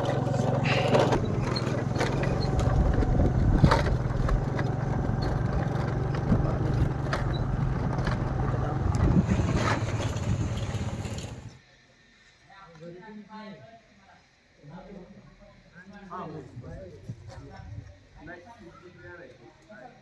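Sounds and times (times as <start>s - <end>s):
sharp knocks and rattles: 0.0s - 11.5s
small engine running: 0.0s - 11.6s.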